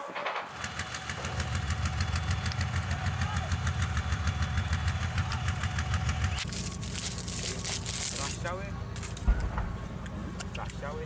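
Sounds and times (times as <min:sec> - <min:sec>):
heavy diesel engine throbbing: 0:00.4 - 0:11.0.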